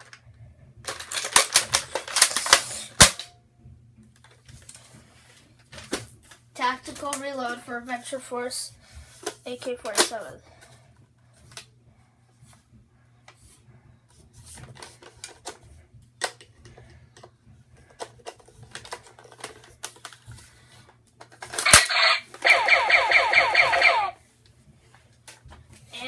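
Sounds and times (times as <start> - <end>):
toy blaster clicks and rattles: 0.8 - 3.3, 9.2 - 10.3, 17.9 - 20.2, 21.2 - 24.2.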